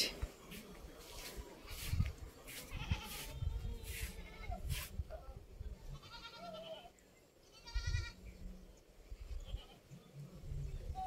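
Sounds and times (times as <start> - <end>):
goats bleating: 2.6 - 4.6, 5.9 - 6.9.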